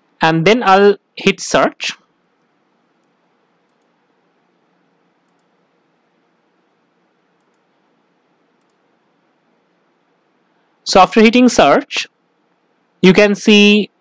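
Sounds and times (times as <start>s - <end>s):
faint steady hiss: 0.0s - 14.0s
computer mouse clicks: 2.4s - 4.0s, 5.2s - 5.6s, 7.3s - 7.8s, 8.5s - 8.8s.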